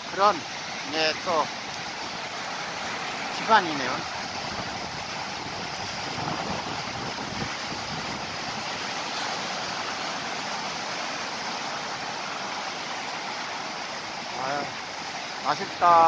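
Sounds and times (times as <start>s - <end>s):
waves breaking on rocky shore: 0.0s - 16.0s
wind on microphone: 4.0s - 9.0s.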